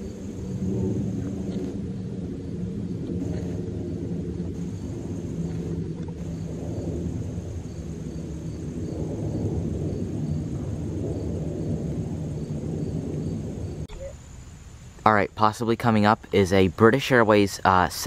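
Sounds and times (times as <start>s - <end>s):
jet engines rumbling overhead: 0.0s - 18.0s.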